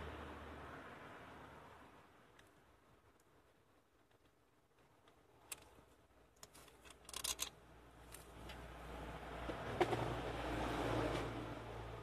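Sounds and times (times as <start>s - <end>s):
light clicks on bolts: 5.0s - 8.6s
rattling clicks: 6.4s - 8.3s.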